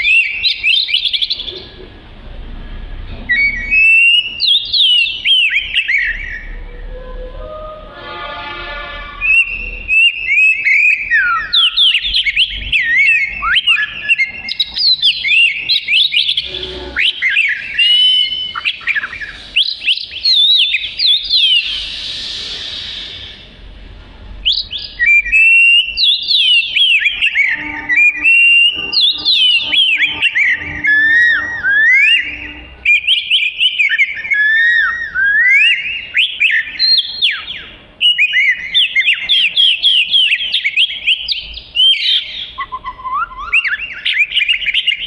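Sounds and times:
bird singing whistled phrases: 0.0s - 1.6s, 3.3s - 7.8s, 9.2s - 23.5s, 24.4s - 45.0s
bird rasping note: 11.4s - 23.8s, 24.4s - 34.8s.

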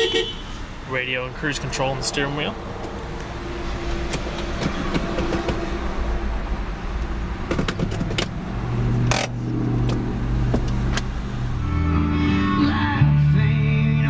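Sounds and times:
gear selector clunk: 4.1s - 5.7s.

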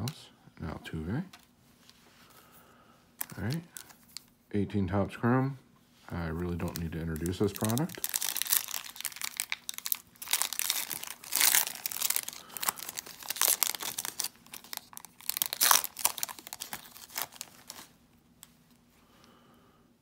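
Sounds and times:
foil wrapper tearing and crinkling: 6.5s - 18.0s.

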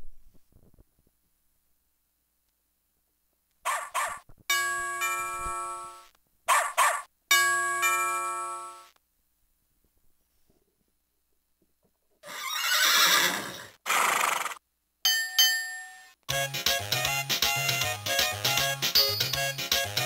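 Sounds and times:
recorded dog barking: 3.6s - 4.3s, 6.5s - 7.1s
toy bell ringing: 15.1s - 16.1s, 19.0s - 19.6s.

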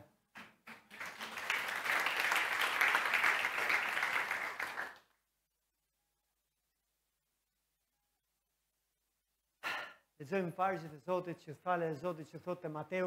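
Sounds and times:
crowd clapping: 0.4s - 5.1s.

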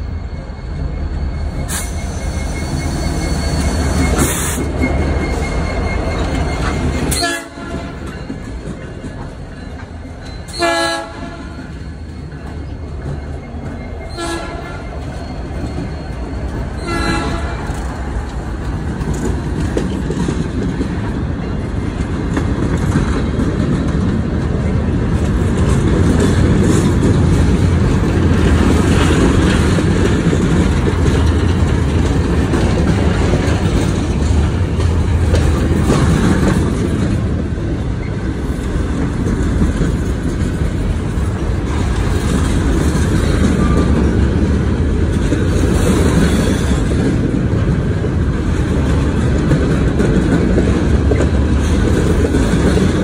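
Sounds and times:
diesel locomotives rumbling: 0.0s - 53.0s
steel wheels on rails: 0.0s - 53.0s
train horn toots: 6.6s - 8.2s, 10.5s - 11.8s, 14.1s - 14.9s, 16.8s - 17.8s.

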